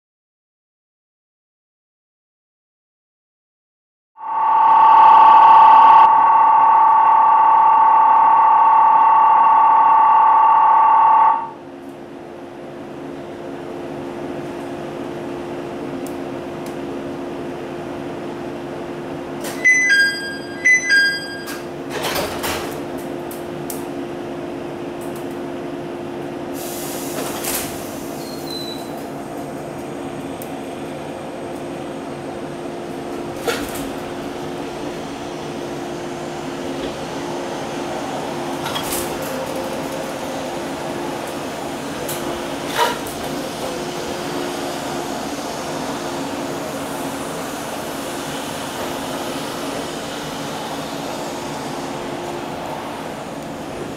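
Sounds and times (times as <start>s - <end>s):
train equipment hum: 6.0s - 53.9s
falling two-note chime: 19.6s - 21.6s
two-tone ringing: 19.6s - 21.7s.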